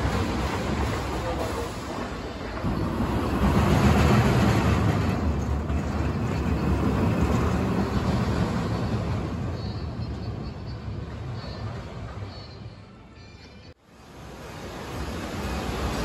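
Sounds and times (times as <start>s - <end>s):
roller coaster rumbling on track: 0.0s - 12.4s.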